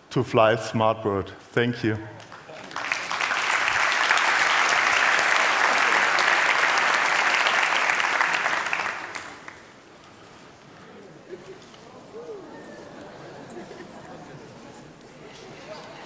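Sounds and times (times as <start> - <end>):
audience applauding: 2.2 - 9.7.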